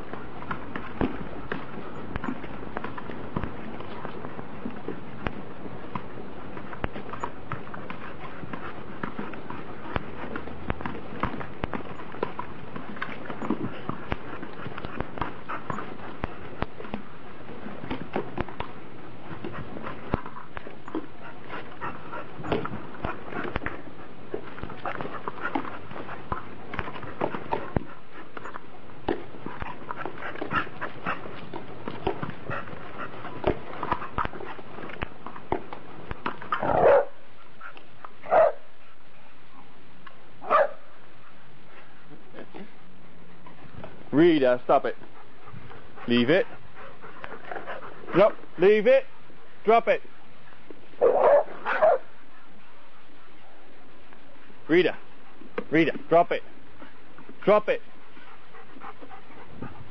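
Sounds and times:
dog barking: 36.7 - 37.2, 38.3 - 38.6, 40.4 - 40.8, 51.0 - 52.1.

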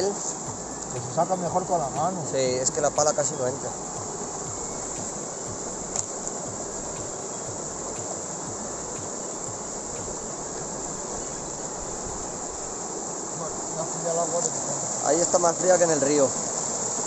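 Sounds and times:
mountain stream rushing: 0.0 - 17.0
sharp click: 5.9 - 6.4.

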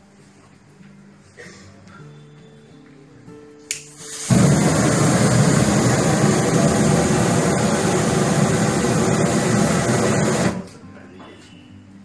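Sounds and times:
aerosol flame jet rushing: 4.0 - 10.7.

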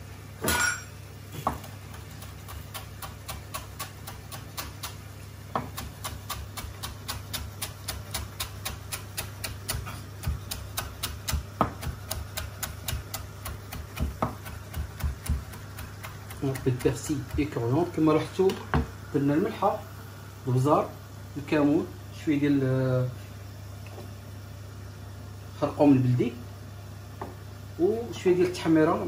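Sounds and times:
knife chopping on wooden board: 1.4 - 17.6.

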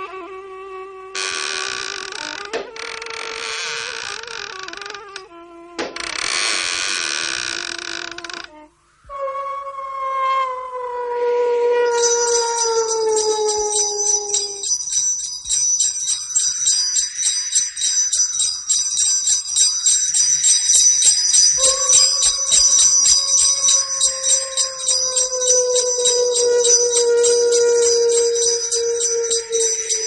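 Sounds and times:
long falling tone: 9.1 - 16.6, 19.4 - 30.0
sleigh bells jingling: 12.0 - 30.0.

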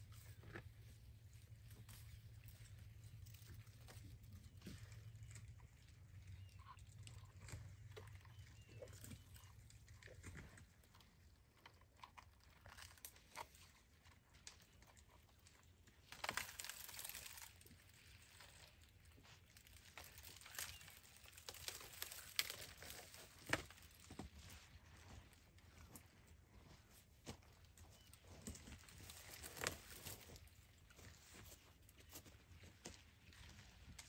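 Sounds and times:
twigs snapping: 16.1 - 18.8, 19.5 - 24.3, 28.4 - 30.4
leaves rustling: 16.1 - 26.0, 26.6 - 34.0.

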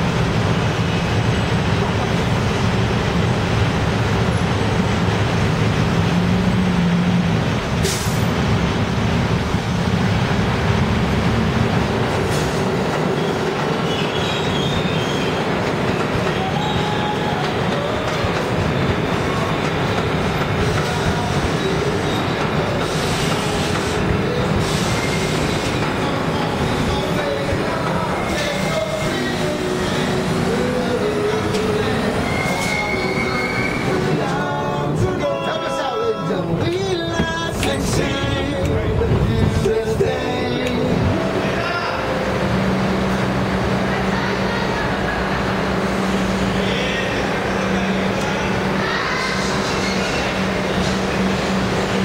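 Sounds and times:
street traffic: 0.0 - 52.0
subway train rumbling on rails: 0.0 - 52.0
faint wheel squeals: 13.2 - 15.5, 24.6 - 25.8, 32.0 - 34.1.

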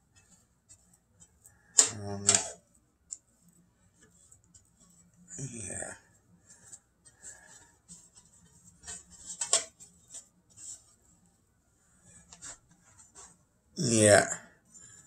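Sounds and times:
brush bristles scraping pan: 0.0 - 2.6, 3.9 - 11.0.

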